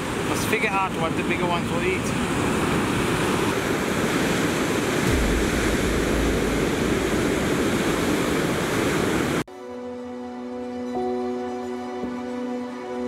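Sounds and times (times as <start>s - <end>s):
ocean surf breaking: 0.0s - 9.5s
deep low rumble: 5.1s - 8.6s.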